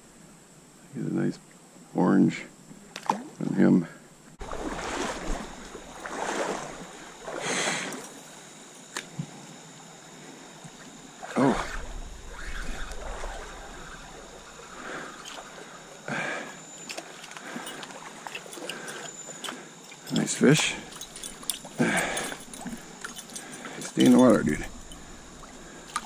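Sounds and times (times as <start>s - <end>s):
water splashes: 4.4s - 8.0s, 11.2s - 16.0s, 16.8s - 26.0s
stream water running: 4.4s - 9.0s, 10.7s - 26.0s.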